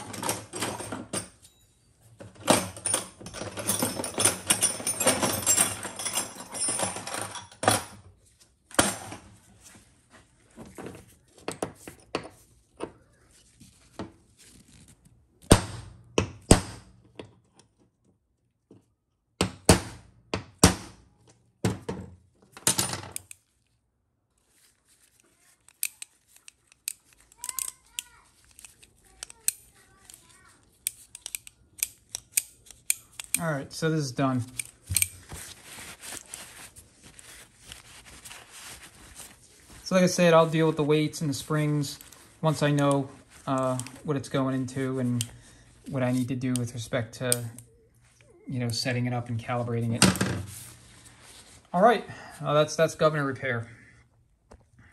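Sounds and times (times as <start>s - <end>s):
rustling and scraping: 0.0s - 15.3s, 22.4s - 46.7s, 48.8s - 51.8s.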